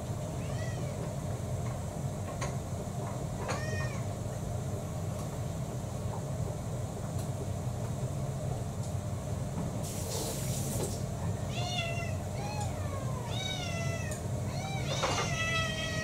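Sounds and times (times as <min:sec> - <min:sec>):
steady low hum: 0:00.0 - 0:16.0
cat meowing: 0:00.3 - 0:01.0, 0:03.4 - 0:04.1, 0:11.5 - 0:16.0
hiss-like rustle: 0:09.8 - 0:11.1.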